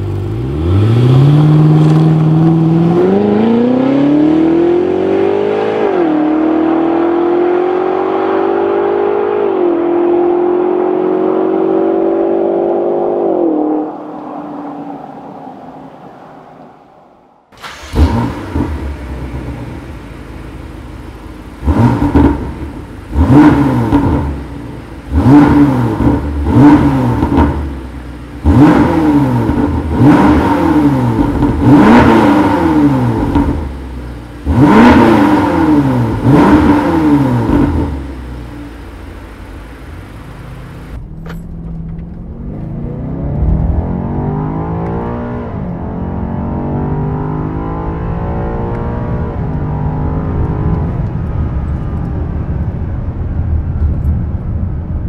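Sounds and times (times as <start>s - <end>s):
car engine idling: 0.0s - 0.5s, 13.5s - 42.8s
car engine accelerating: 0.0s - 55.0s
car engine throttle blips: 8.8s - 55.0s.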